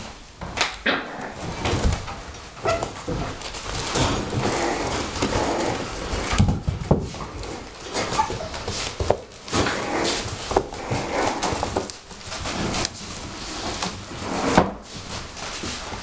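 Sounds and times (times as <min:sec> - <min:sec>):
puppies scuffling on padded floor: 0:00.0 - 0:16.0
puppy vocal sounds: 0:03.9 - 0:06.4.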